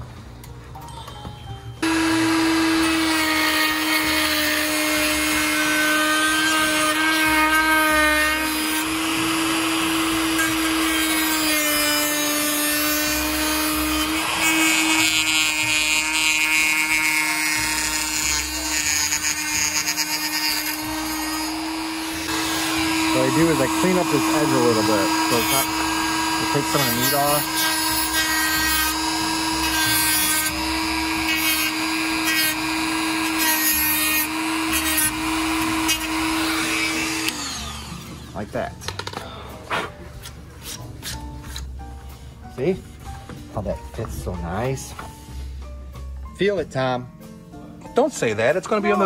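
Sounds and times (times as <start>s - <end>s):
harsh grinding: 1.8s - 7.0s, 8.3s - 38.4s
rotary tool whining: 1.8s - 38.4s.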